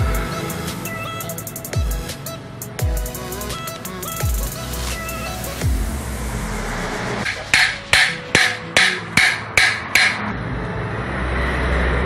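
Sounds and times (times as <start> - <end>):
hammer striking metal: 7.2 - 10.3.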